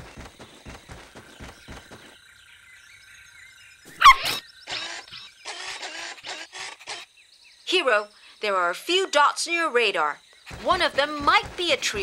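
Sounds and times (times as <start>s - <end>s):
cartoon pattering footsteps: 0.0s - 2.2s, 10.4s - 12.0s.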